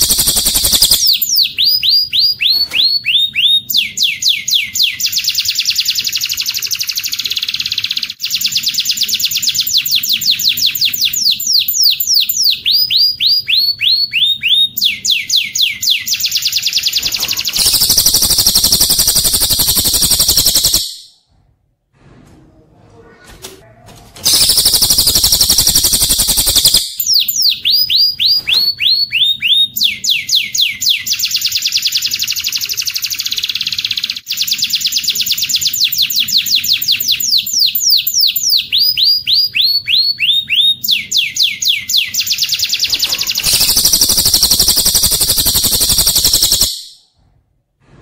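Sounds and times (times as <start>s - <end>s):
dense high bird trill: 0.0s - 3.5s, 16.2s - 21.1s, 24.3s - 29.6s, 42.3s - 47.0s
downslurred whistled bird notes: 0.0s - 21.1s, 34.3s - 47.0s.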